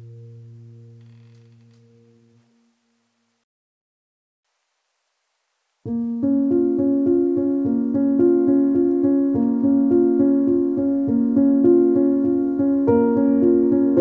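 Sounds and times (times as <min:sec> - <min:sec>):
piano keyboard music: 0:00.0 - 0:01.0, 0:05.9 - 0:14.0.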